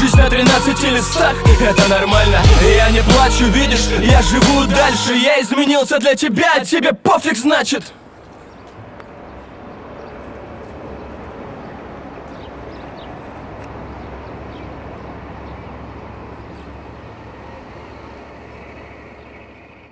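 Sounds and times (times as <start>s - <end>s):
distant traffic rumble: 7.1s - 19.9s.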